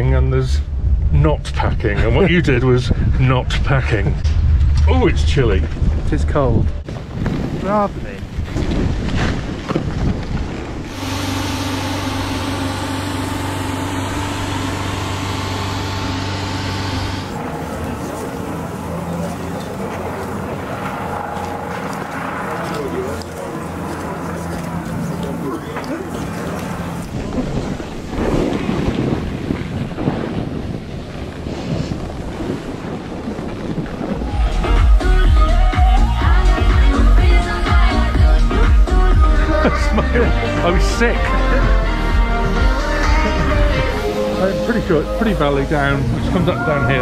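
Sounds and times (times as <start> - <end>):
wind on microphone: 0.6 - 12.2, 26.0 - 36.8
snowboard sliding through snow: 6.9 - 11.3, 27.1 - 34.8
helicopter hovering: 10.6 - 47.0
deep music beat: 34.3 - 46.3.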